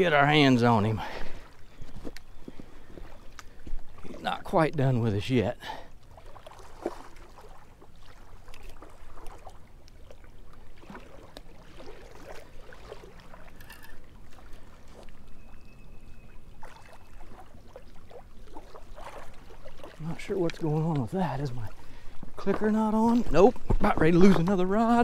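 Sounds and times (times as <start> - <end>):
small waves lapping: 0.0 - 25.0
fishing reel knocks and rustles: 13.6 - 14.0.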